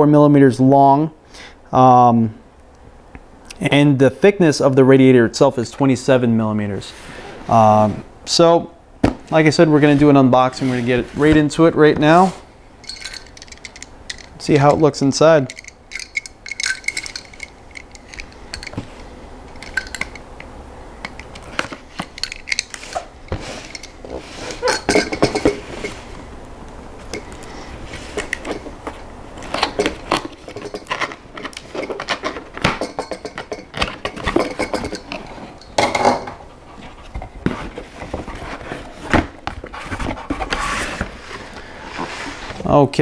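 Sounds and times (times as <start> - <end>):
cardboard box scraping and rustling: 37.0 - 42.6.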